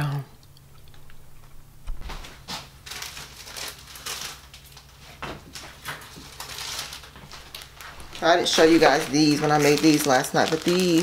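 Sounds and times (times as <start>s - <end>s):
plastic packaging crinkling: 1.9s - 11.0s.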